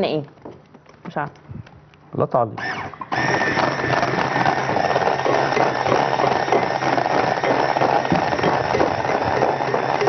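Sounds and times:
electric mixer running: 2.6 - 10.0
beater rattling against glass bowl: 3.6 - 10.0.

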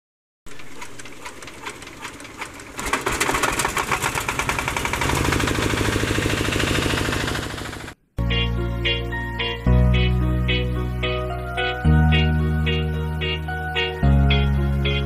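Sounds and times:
generator engine cranking and running: 0.5 - 8.0.

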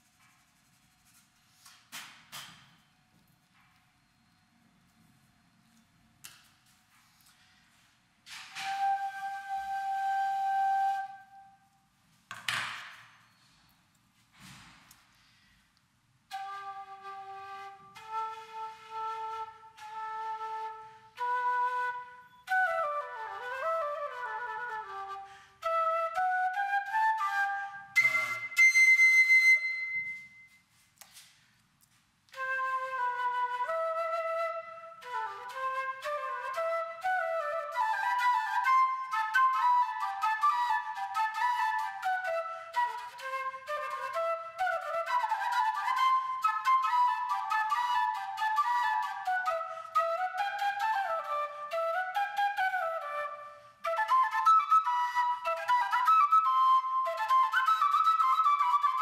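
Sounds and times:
end-blown flute melody: 8.5 - 11.6, 16.3 - 30.6
breathy flute note: 27.4 - 28.7.

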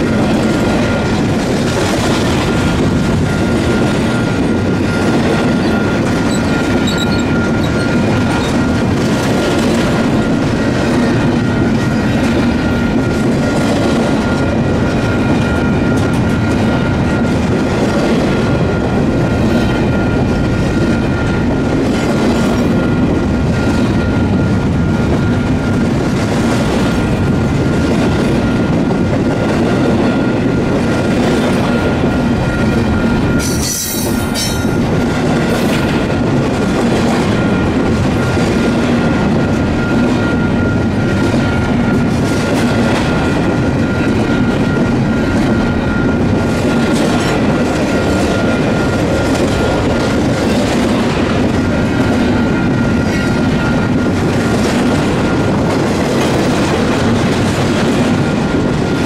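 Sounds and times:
train wheels rumbling on rail: 0.0 - 59.0
wheel squeal: 4.9 - 8.7.

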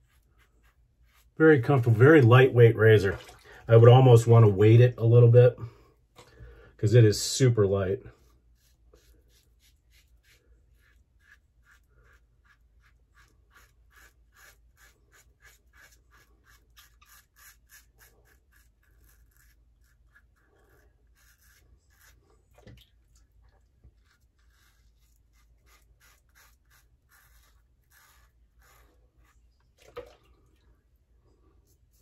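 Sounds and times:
razor scraping stubble: 0.0 - 2.4, 7.6 - 22.6, 23.8 - 29.6.

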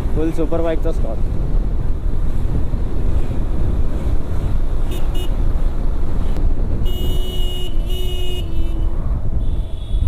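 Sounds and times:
wind rumble on helmet mic: 0.0 - 10.0
vehicle horn honking: 6.8 - 10.0.

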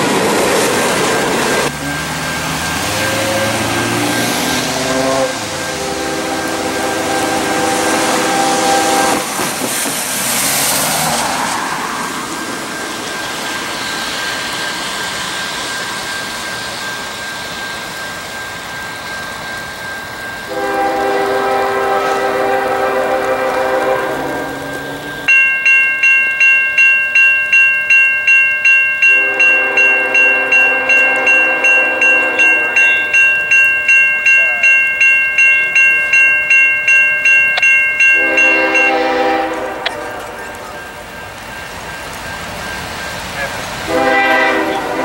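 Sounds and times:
locomotive air horn: 2.8 - 9.4, 20.5 - 24.8, 29.1 - 33.2, 38.2 - 40.9, 43.9 - 45.0
car driving past: 9.2 - 12.4.

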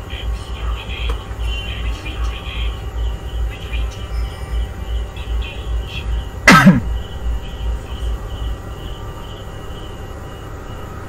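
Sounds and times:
low pulsing beat: 0.0 - 9.6
short falling grunt: 6.5 - 6.9.

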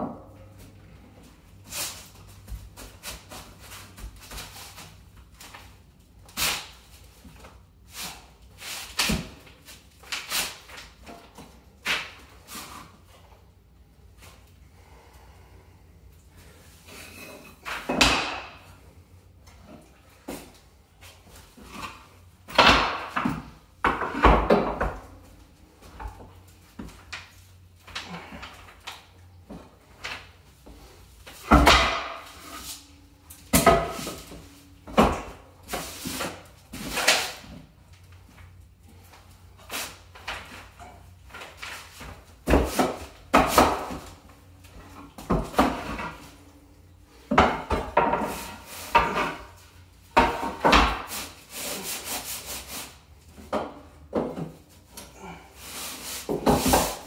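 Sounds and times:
wooden blocks knocking and scraping: 21.6 - 25.2, 40.1 - 44.2, 44.8 - 46.5, 47.2 - 51.4, 53.3 - 54.7, 55.6 - 57.0.

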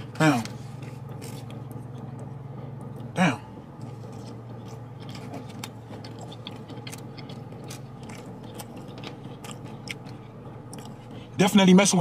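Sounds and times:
steady low hum: 0.0 - 12.0
mouth chewing clicks and smacks: 3.8 - 11.3.

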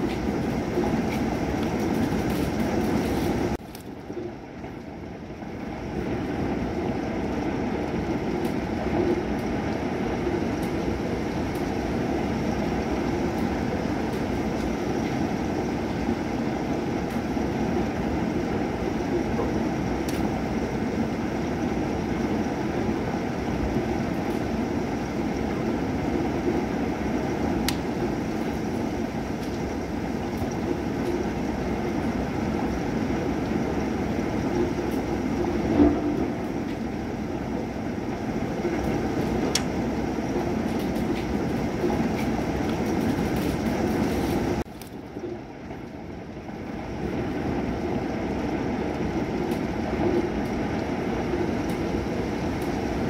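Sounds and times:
heavy rain: 0.0 - 53.0
low thunder rumble: 0.0 - 53.0.

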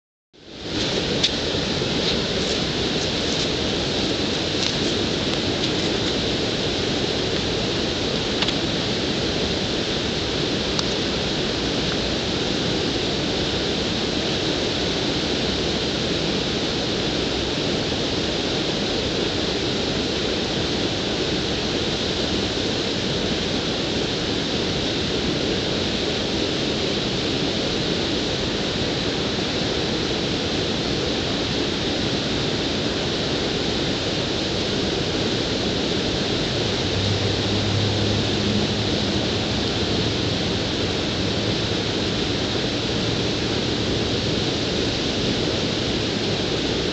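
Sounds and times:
low hum: 0.4 - 17.3, 33.2 - 46.9.

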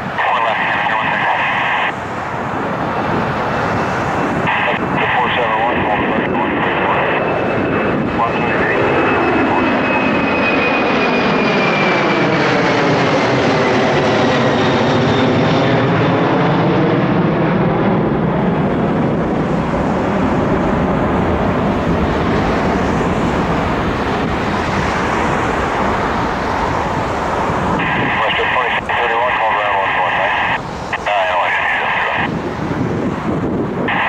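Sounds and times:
jet airliner passing overhead: 0.0 - 34.0.

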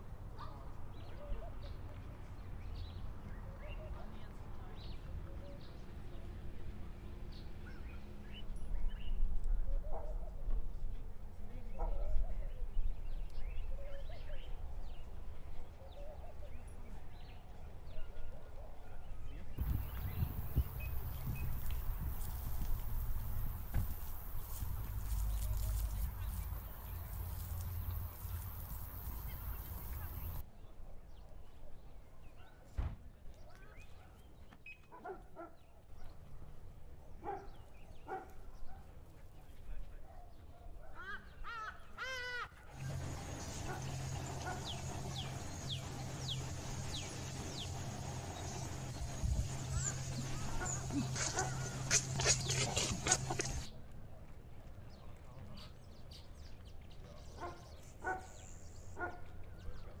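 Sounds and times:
faint small birds chirping: 19.6 - 30.4
thump: 23.6 - 24.0, 32.8 - 33.0
steady low hum: 42.8 - 53.7.

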